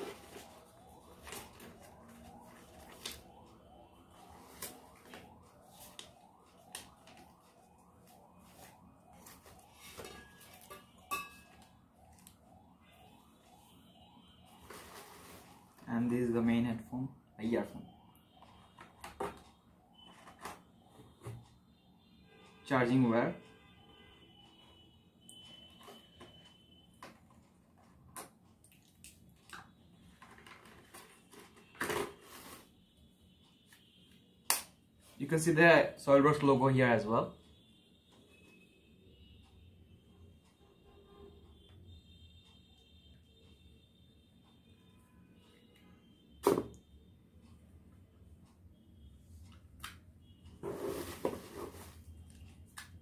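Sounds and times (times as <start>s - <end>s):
paper and plastic rustling: 0.0s - 11.0s, 14.4s - 16.0s, 30.1s - 32.7s, 50.6s - 52.5s.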